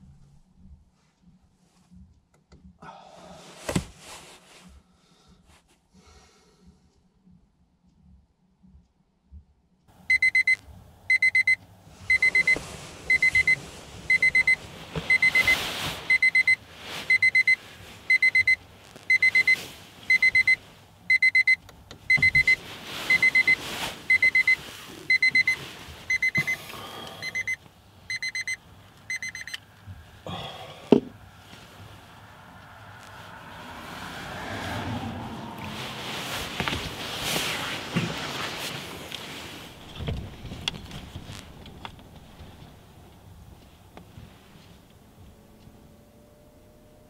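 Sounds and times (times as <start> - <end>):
alarm clock beeping: 10.1 - 26.6, 27.2 - 29.6.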